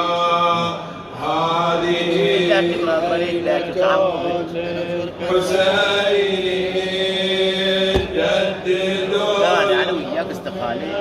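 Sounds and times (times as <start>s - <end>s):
thump: 7.9s - 8.4s.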